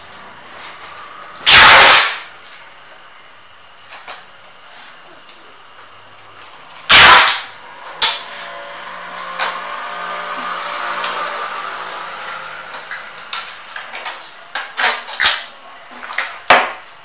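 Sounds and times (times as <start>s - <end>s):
packing tape ripped off roll: 0.6s - 2.6s, 6.9s - 8.5s, 9.1s - 9.7s, 12.1s - 17.0s.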